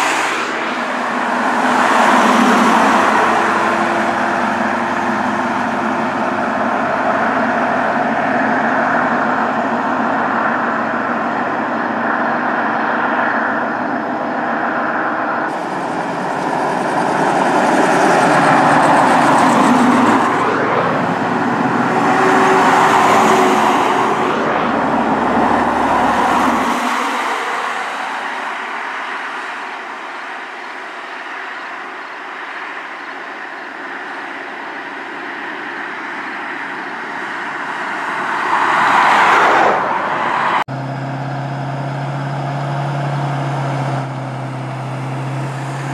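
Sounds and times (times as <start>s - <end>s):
trucks driving past: 0.0s - 45.9s.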